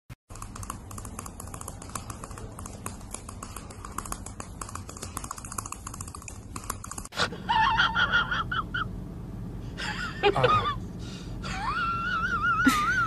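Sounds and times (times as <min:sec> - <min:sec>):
dog's teeth chattering: 0:00.3 - 0:07.2.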